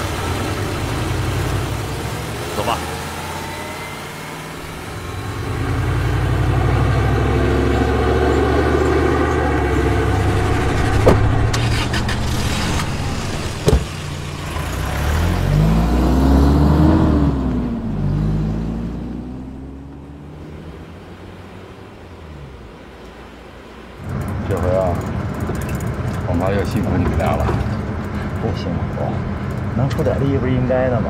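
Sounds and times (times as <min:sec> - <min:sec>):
vehicle engine driving: 0:00.0 - 0:31.0
sharp knocks: 0:10.4 - 0:11.7, 0:12.6 - 0:14.2.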